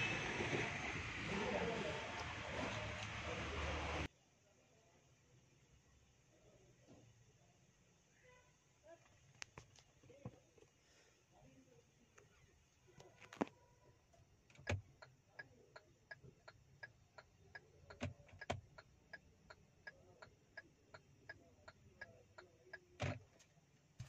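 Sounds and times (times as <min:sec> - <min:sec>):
turn signal ticking: 0:14.6 - 0:23.4.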